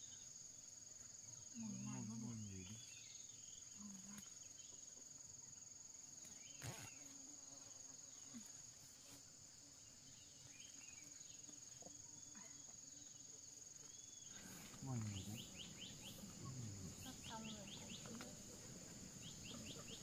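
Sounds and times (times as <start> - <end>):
insects chirring: 0.0 - 20.0.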